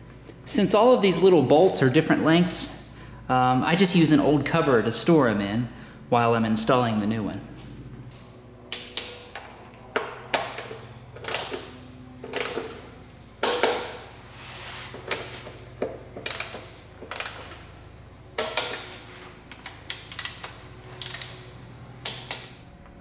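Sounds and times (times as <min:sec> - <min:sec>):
hand ratchet clicking: 0:12.3 - 0:12.7, 0:16.2 - 0:17.6, 0:19.5 - 0:22.6.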